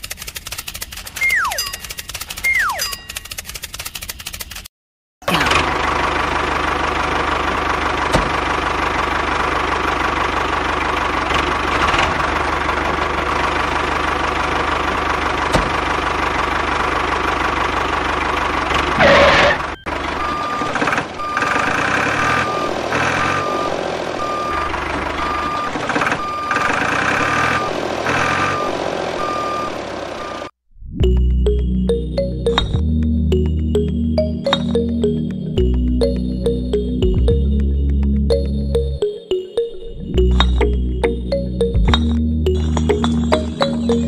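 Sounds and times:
tractor engine running: 0:00.0 - 0:44.0
reversing alarm beeping: 0:19.0 - 0:30.5.

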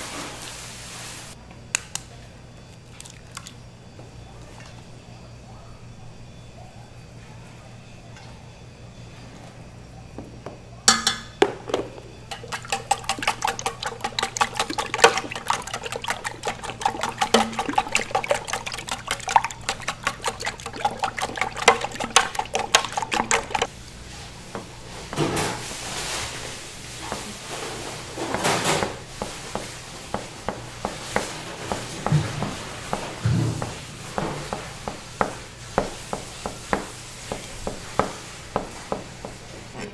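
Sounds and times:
metal utensil clinking against pan: 0:10.9 - 0:11.4
liquid egg sloshing: 0:11.8 - 0:23.7.

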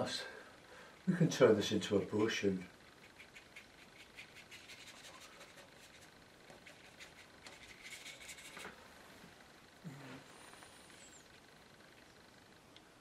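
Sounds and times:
paintbrush dabbing on paper: 0:02.9 - 0:08.6.

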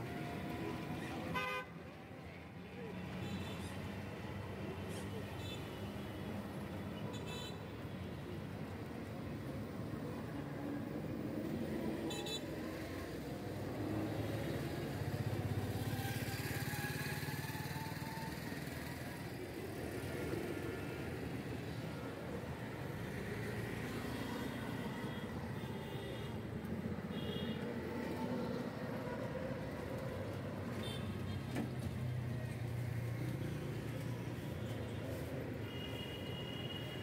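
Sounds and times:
traffic rumble: 0:08.0 - 0:37.0.

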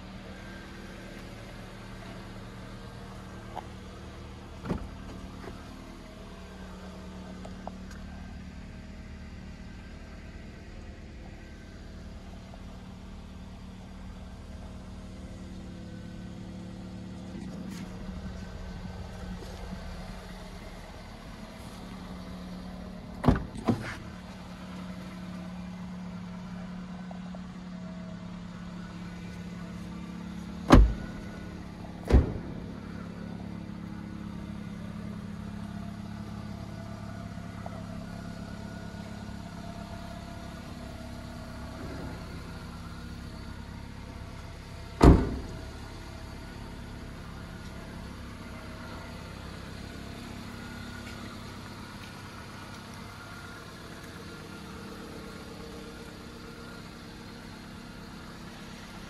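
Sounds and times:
car engine idling: 0:00.0 - 0:59.0
sharp thumps: 0:30.7 - 0:31.2.

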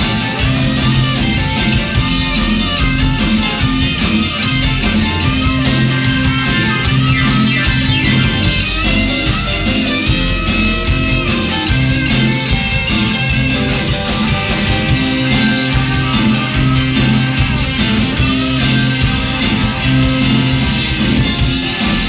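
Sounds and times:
bass guitar line: 0:00.0 - 0:22.0
drums: 0:00.0 - 0:22.0
electric guitar: 0:00.0 - 0:22.0.

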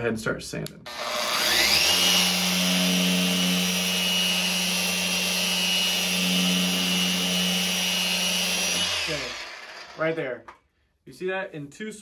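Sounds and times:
orbital sander whining: 0:00.9 - 0:10.2.

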